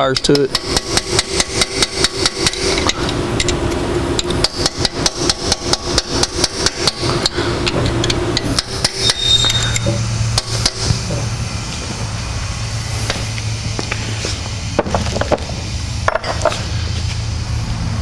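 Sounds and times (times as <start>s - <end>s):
metal clicks of hand tools: 0.0s - 3.6s
steady low hum: 0.0s - 18.0s
sharp knocks: 4.2s - 11.3s.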